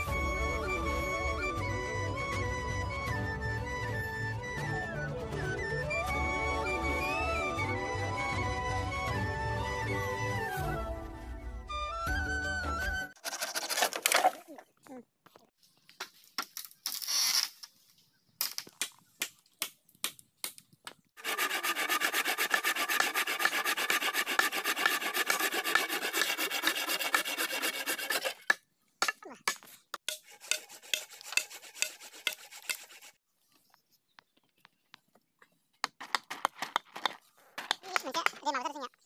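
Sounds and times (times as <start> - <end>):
hand saw rasping through bamboo: 13.2 - 14.4, 21.2 - 28.6, 30.0 - 33.2.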